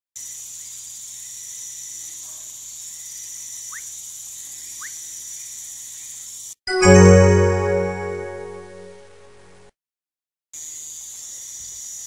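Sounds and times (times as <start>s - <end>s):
high-pitched insect chorus: 0.2s - 6.6s, 10.6s - 12.0s.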